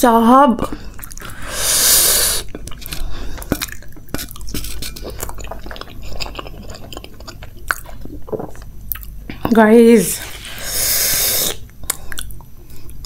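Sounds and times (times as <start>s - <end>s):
wet chewing and mouth smacks: 0.7s - 1.4s, 2.4s - 9.5s, 11.4s - 13.0s.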